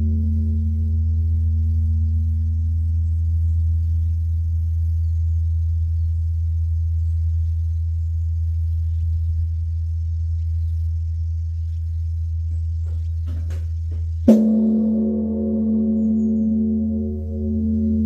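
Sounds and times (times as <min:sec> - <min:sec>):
deep bell hum: 0:00.0 - 0:05.7, 0:12.6 - 0:18.0
temple bell ringing: 0:14.3 - 0:18.0.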